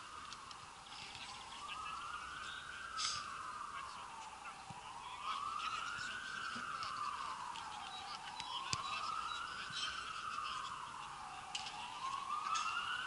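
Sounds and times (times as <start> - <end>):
emergency siren wailing: 0.0 - 13.0.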